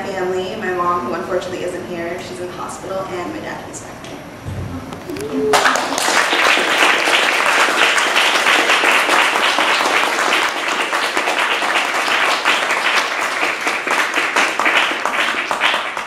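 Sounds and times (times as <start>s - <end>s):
audience applauding: 5.1s - 16.0s.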